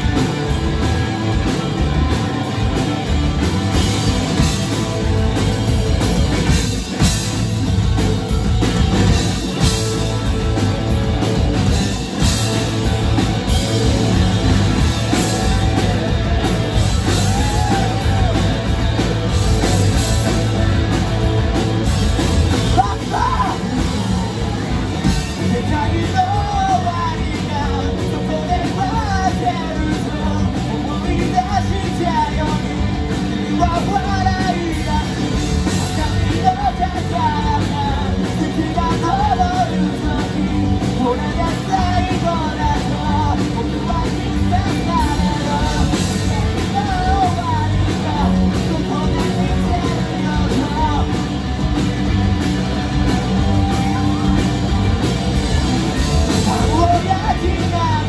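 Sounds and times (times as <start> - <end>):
live rock band playing: 0.0 - 58.0
lead vocal singing: 14.9 - 18.9, 22.5 - 51.2, 56.1 - 58.0.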